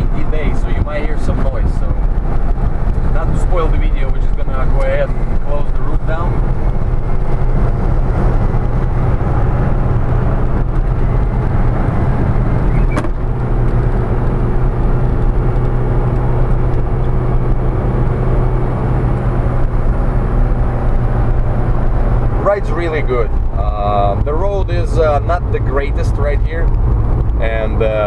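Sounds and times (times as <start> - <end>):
engine drone: 0.0 - 28.0
road and tyre noise: 0.0 - 28.0.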